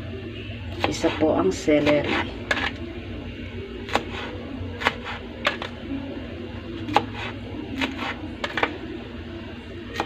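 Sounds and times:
knife chopping on cutting board: 0:03.9 - 0:05.7, 0:06.9 - 0:08.7.

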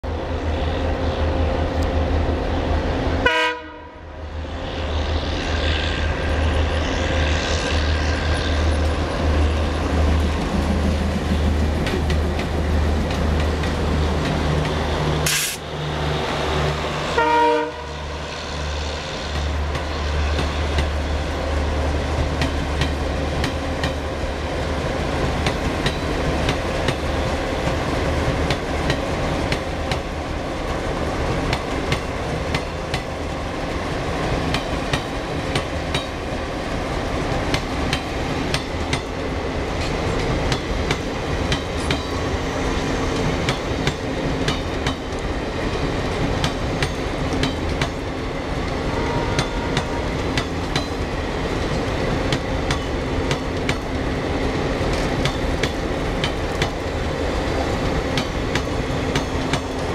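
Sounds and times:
diesel locomotive engine rumble: 0:00.0 - 0:59.9
locomotive horn blasts: 0:03.2 - 0:04.0, 0:17.0 - 0:18.1, 0:48.9 - 0:50.2.

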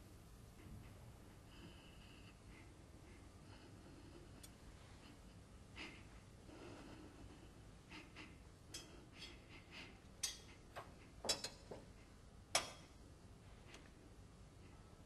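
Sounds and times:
faint breathing: 0:01.3 - 0:10.7.

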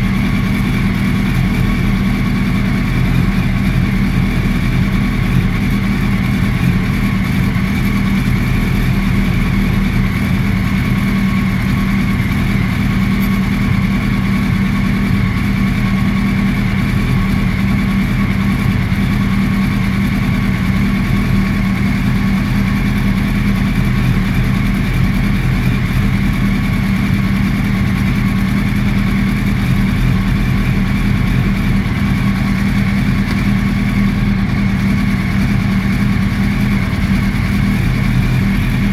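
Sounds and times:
motorcycle engine running steadily: 0:00.0 - 0:38.9.

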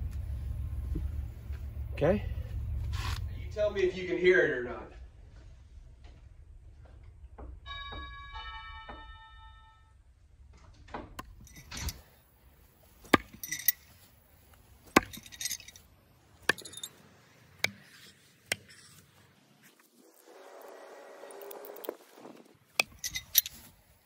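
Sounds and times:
doorbell ding-dong chime: 0:07.7 - 0:10.0.

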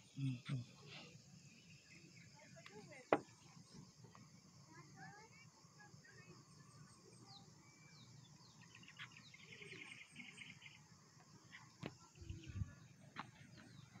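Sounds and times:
insects chirping: 0:00.0 - 0:14.0
bird calls: 0:07.2 - 0:14.0.

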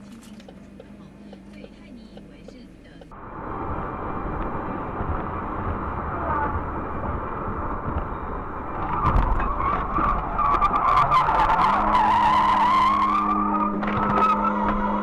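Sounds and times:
steady low hum: 0:00.0 - 0:10.4
tyres squealing: 0:08.1 - 0:15.0.

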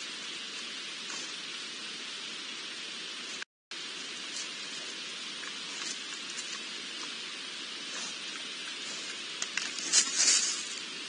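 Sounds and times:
steady hiss: 0:00.0 - 0:11.0
faint ticks and rustles: 0:04.2 - 0:10.9
crackling steps in dry leaves: 0:07.8 - 0:11.0.

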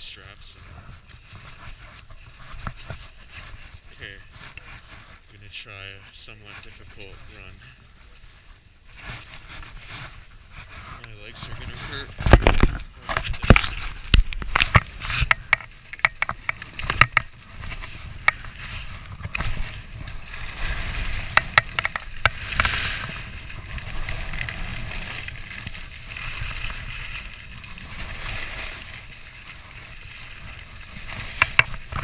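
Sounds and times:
skis scraping over snow: 0:00.0 - 0:32.0
wind on microphone: 0:06.3 - 0:32.0
ski poles clicking and knocking: 0:09.0 - 0:32.0.

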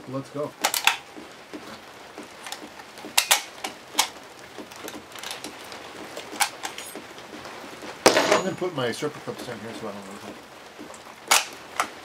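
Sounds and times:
metallic clicks of rifle action: 0:00.6 - 0:01.0.

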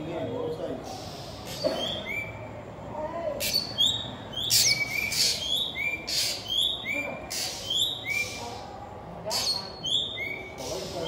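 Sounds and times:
songbird whistled notes: 0:01.4 - 0:02.5, 0:03.4 - 0:08.5, 0:09.3 - 0:10.7.

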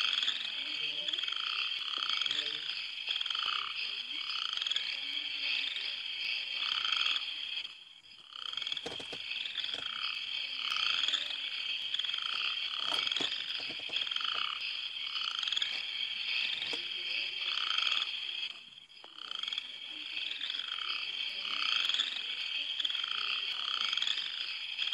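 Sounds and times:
frog croaking: 0:00.0 - 0:24.9
high-pitched frog chorus: 0:00.0 - 0:24.9.

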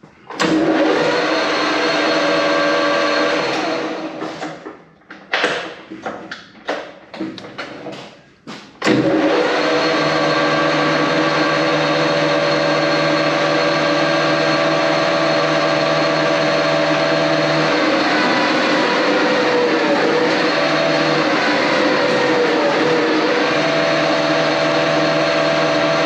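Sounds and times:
metal lathe running: 0:08.8 - 0:26.0.

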